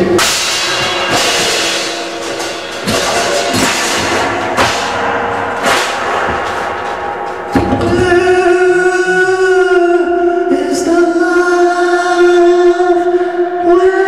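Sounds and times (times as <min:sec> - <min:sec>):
cymbal struck: 0:00.0 - 0:09.4
loud electric guitar: 0:00.0 - 0:14.0.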